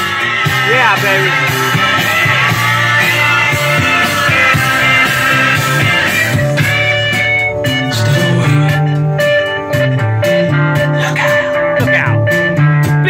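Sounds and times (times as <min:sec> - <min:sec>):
sliding pitch glide: 0:00.0 - 0:07.0
rock guitar: 0:00.0 - 0:13.0
person singing: 0:07.8 - 0:09.0, 0:10.8 - 0:11.9.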